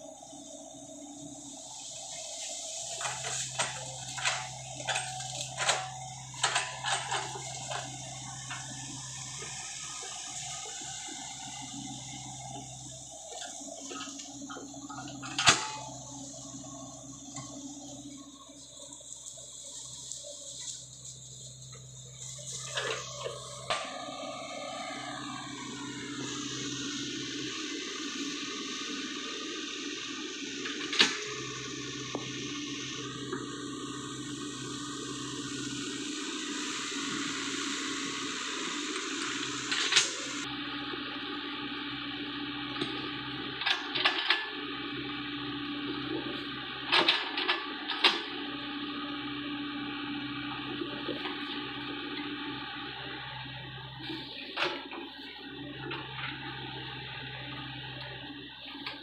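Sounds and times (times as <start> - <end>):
excavator engine and hydraulics: 0.0 - 59.0.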